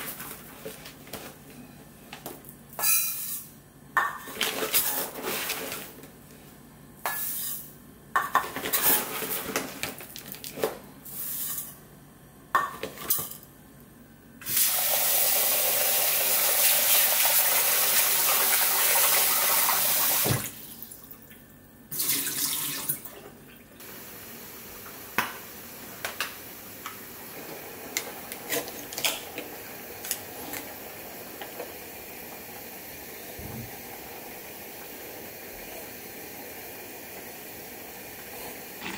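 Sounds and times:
tap water running into a pot: 0:14.5 - 0:20.6, 0:21.9 - 0:23.2.

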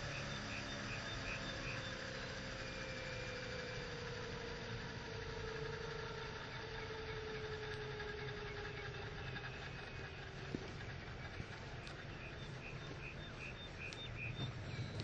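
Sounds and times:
model helicopter rotor whine: 0:00.0 - 0:15.0
low rumble: 0:09.7 - 0:15.0
click: 0:11.8 - 0:12.0, 0:13.9 - 0:15.0.

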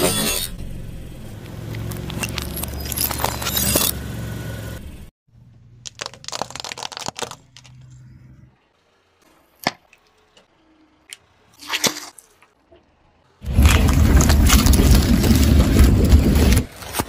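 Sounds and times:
glass bowl cracking under tyre: 0:01.9 - 0:03.9, 0:05.8 - 0:07.8
plastic bottles cracking: 0:05.8 - 0:07.9.

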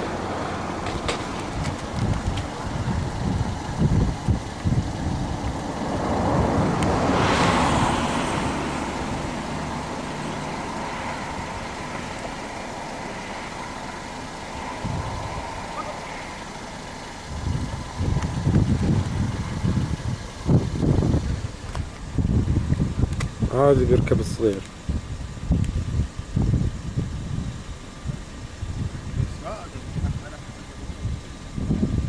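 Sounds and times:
vehicle passing: 0:00.0 - 0:24.5
traffic noise: 0:00.0 - 0:32.0
wind buffeting microphone: 0:00.0 - 0:32.0.

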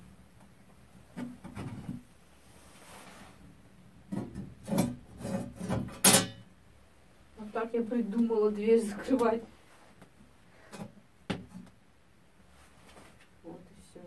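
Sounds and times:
firewood scraping into stove: 0:04.1 - 0:06.0
metal plate scraping and knocking: 0:04.1 - 0:06.4.

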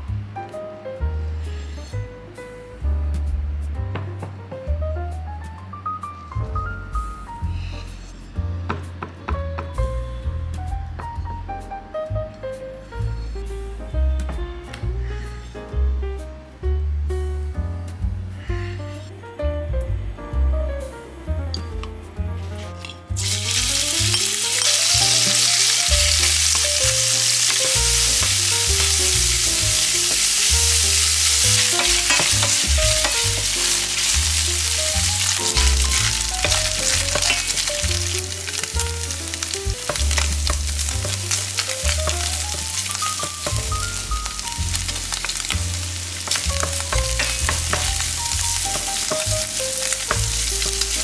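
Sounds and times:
spatula scraping pan: 0:22.5 - 0:38.6
meat sizzling in oil: 0:22.8 - 0:51.0.

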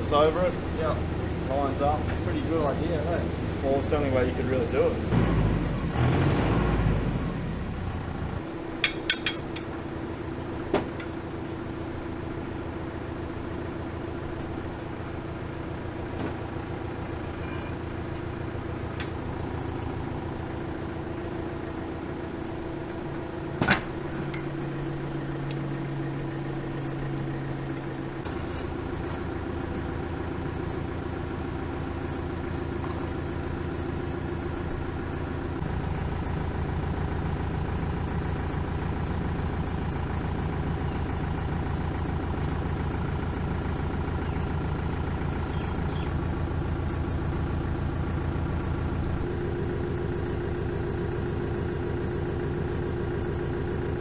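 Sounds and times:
sharp metallic clink: 0:08.8 - 0:09.7.

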